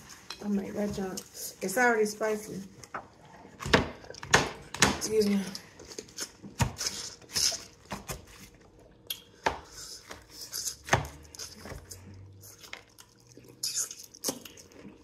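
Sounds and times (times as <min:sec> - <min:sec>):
lips smacking and sucking: 0:13.4 - 0:14.7.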